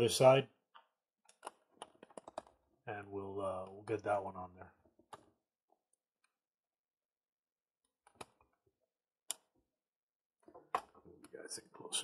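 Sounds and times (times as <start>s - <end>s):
faint clicks and knocks: 0.7s - 2.6s.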